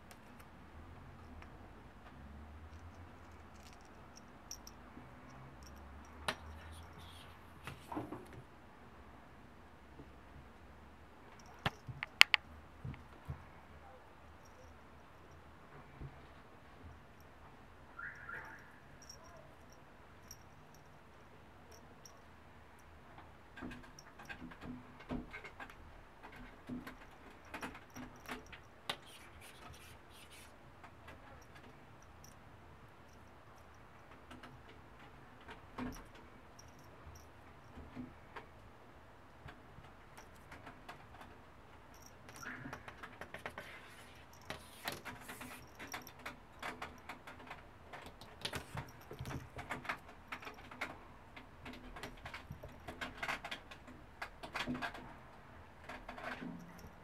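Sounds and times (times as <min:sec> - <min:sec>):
kitten claws scratching: 0:05.3 - 0:08.4, 0:11.4 - 0:13.2, 0:23.6 - 0:32.4, 0:42.1 - 0:51.0
sharp click: 0:11.6 - 0:12.5.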